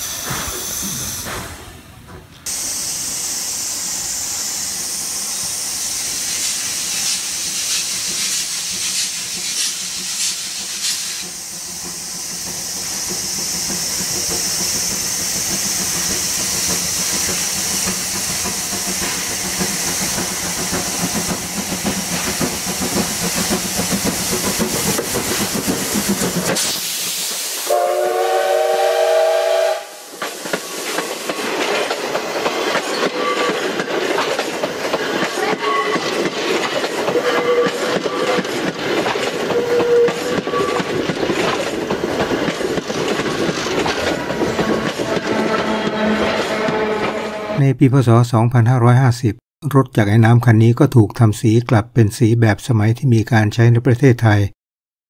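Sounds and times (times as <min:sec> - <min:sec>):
steam locomotive hissing: 0:00.0 - 0:47.4
steam whistle: 0:27.6 - 0:30.1.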